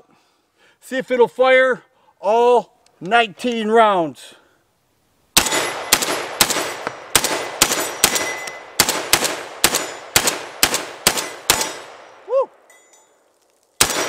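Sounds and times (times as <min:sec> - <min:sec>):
shotgun shots with echo: 0:05.4 - 0:12.1, 0:13.8 - 0:14.0.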